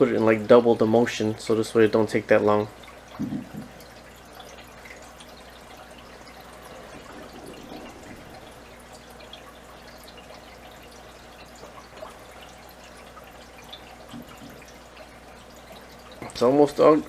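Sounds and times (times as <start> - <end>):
water trickling and dripping: 0.0 - 17.0
low steady hum: 5.7 - 9.8.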